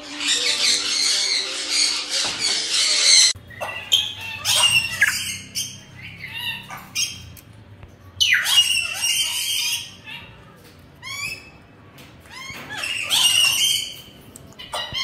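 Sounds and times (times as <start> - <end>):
parrots squawking and chattering: 0.0 - 7.6, 8.2 - 15.0
shrill parrot squawks: 2.8 - 7.2.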